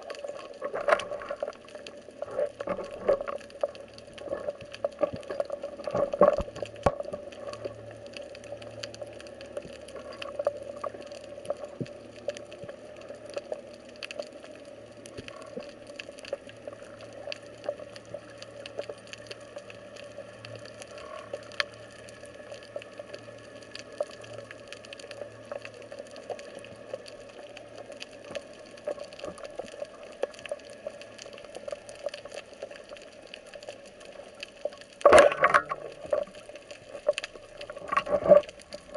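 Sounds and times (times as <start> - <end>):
faint underwater hum: 0.0 - 38.9
sharp underwater clicks and crackles: 0.0 - 38.9.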